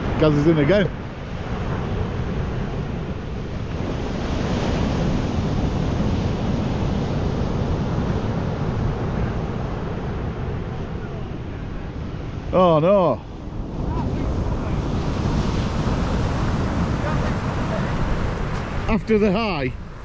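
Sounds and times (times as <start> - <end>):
surf washing onto beach: 0.0 - 20.0
wind buffeting microphone: 0.0 - 20.0.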